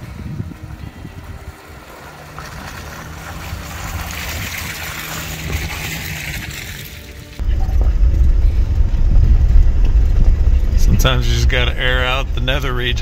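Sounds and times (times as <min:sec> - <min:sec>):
car engine running low: 0:00.0 - 0:13.0
water splashing and rushing: 0:00.0 - 0:13.0
loud low rumble: 0:07.4 - 0:13.0.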